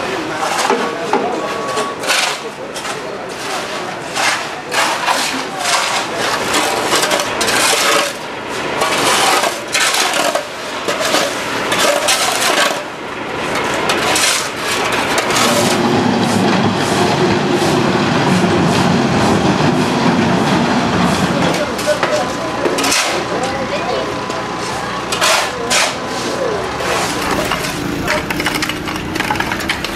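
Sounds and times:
shovels scraping mud and gravel: 0:01.6 - 0:17.0, 0:22.7 - 0:23.4, 0:24.6 - 0:29.9
diesel engine running: 0:06.2 - 0:29.9.

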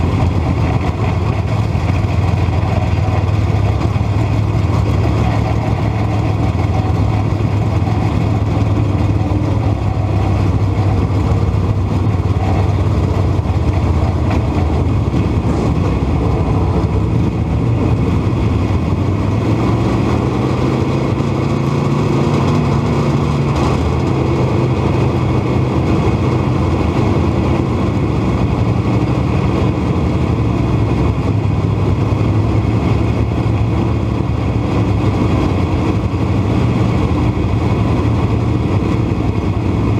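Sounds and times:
race car engine running: 0:00.0 - 0:39.9
surrounding race car engines: 0:00.0 - 0:39.9.

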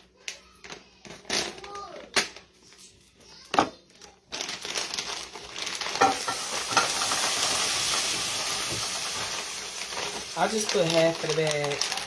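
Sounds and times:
scallops sizzling in oil: 0:06.0 - 0:11.9.

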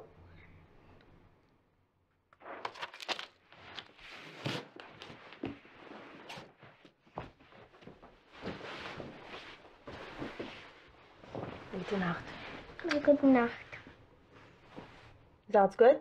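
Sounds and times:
clothing rustling on carpet: 0:03.5 - 0:15.3
soft scrapes and knocks: 0:04.0 - 0:15.2.

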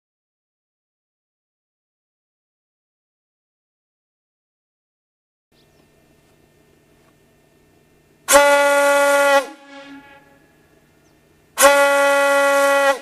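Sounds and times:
ship's horn blasts: 0:08.3 - 0:11.0, 0:11.6 - 0:13.0.

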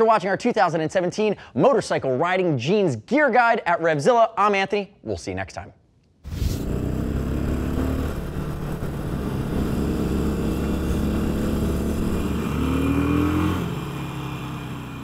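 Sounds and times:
motorcycle engine running: 0:06.5 - 0:15.0.

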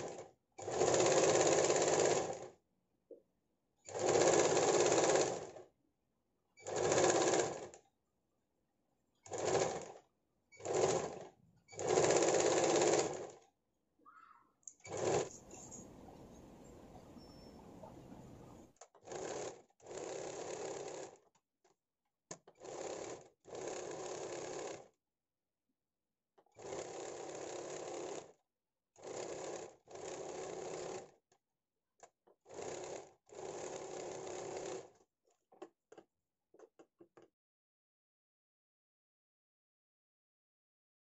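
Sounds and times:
sewing machine stitching: 0:00.0 - 0:02.6, 0:03.8 - 0:05.7, 0:06.6 - 0:07.8, 0:09.2 - 0:13.4, 0:14.7 - 0:21.3, 0:22.4 - 0:25.0, 0:26.6 - 0:28.4, 0:29.0 - 0:31.2, 0:32.4 - 0:35.7.

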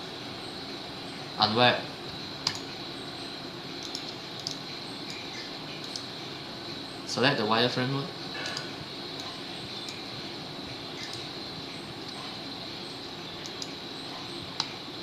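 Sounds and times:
faint high whine: 0:00.0 - 0:15.0
computer mouse clicks: 0:02.4 - 0:02.7, 0:03.8 - 0:06.1, 0:08.4 - 0:10.0, 0:11.0 - 0:11.3, 0:13.4 - 0:13.8, 0:14.6 - 0:14.8.

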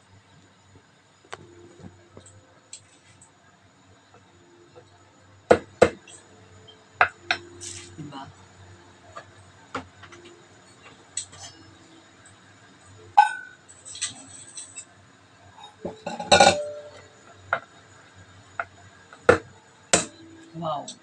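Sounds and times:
metal bowl and utensils clinking: 0:13.3 - 0:14.9, 0:15.7 - 0:17.1.

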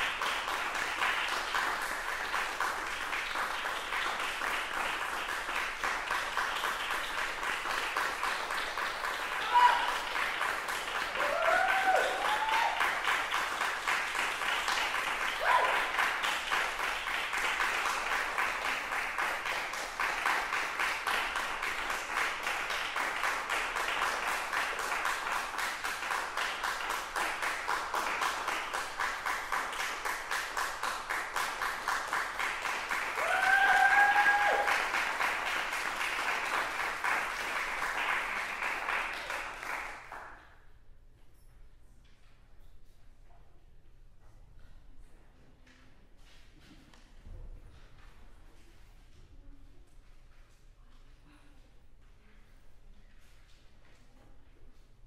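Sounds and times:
audience applauding: 0:00.0 - 0:40.4
calls from crowd: 0:09.3 - 0:10.2, 0:11.2 - 0:13.0, 0:33.2 - 0:35.0.

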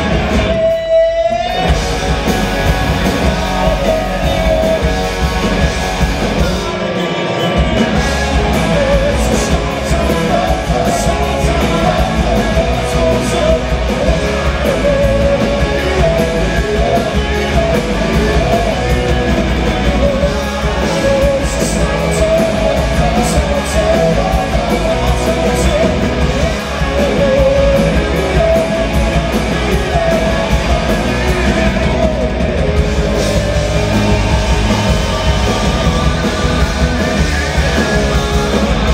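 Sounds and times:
bass guitar: 0:00.0 - 0:38.9
distorted electric guitars: 0:00.0 - 0:38.9
drums with cymbal crashes: 0:00.0 - 0:38.9
keyboards: 0:00.0 - 0:38.9
singer's voice: 0:00.0 - 0:38.9.

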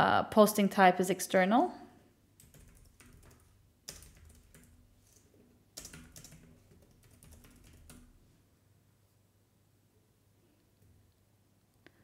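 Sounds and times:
typing on keyboard: 0:02.4 - 0:08.2.

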